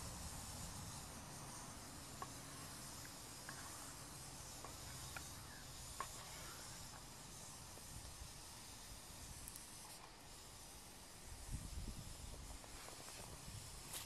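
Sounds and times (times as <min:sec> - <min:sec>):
faint steady hiss: 0:00.0 - 0:14.0
small pops: 0:02.0 - 0:07.9.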